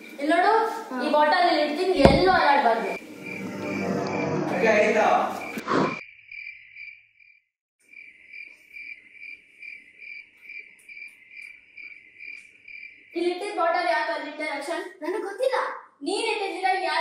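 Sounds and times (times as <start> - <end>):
cricket chirping: 3.0 - 4.2, 5.3 - 13.5.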